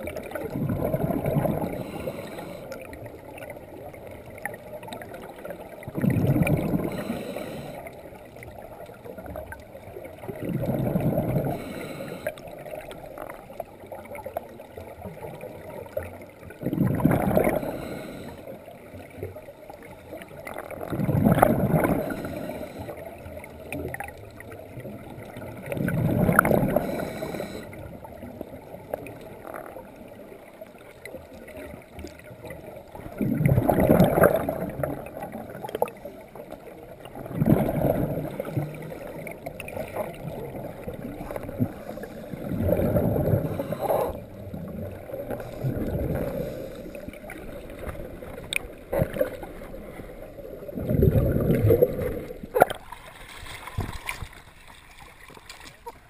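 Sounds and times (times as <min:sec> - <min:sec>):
underwater background: 0:00.0 - 0:56.0
diver exhaling bubbles: 0:00.3 - 0:02.7, 0:05.9 - 0:07.8, 0:10.3 - 0:12.3, 0:16.6 - 0:18.4, 0:20.7 - 0:23.0, 0:25.6 - 0:27.7, 0:33.1 - 0:36.0, 0:37.2 - 0:48.2, 0:48.9 - 0:54.4.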